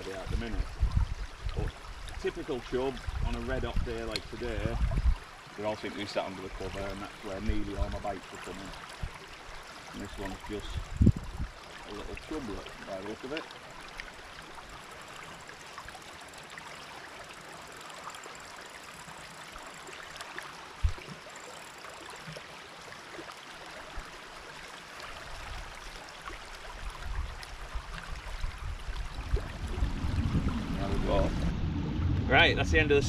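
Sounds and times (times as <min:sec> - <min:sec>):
river water rushing over shallows: 0:00.0 - 0:33.0
low rumble: 0:28.7 - 0:33.0.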